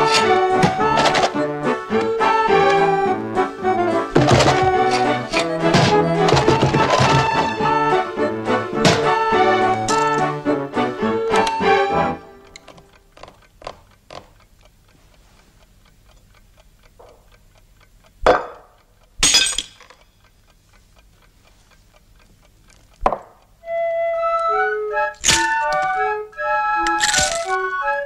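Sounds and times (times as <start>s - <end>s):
bouncy organ-like tune: 0.0s - 12.4s
clock ticking: 0.0s - 26.4s
plate cracking: 19.2s - 20.0s, 25.2s - 26.0s, 26.8s - 27.7s.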